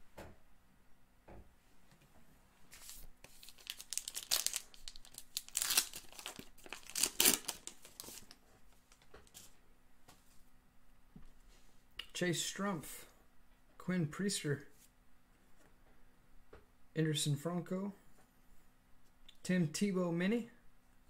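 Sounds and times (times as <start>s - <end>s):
plastic wrapper crinkling and tearing: 2.8s - 9.4s.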